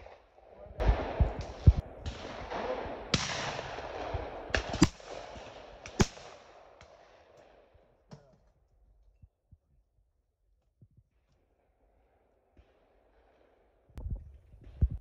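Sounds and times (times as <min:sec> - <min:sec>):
shotgun reports with echo: 0:00.0 - 0:06.7.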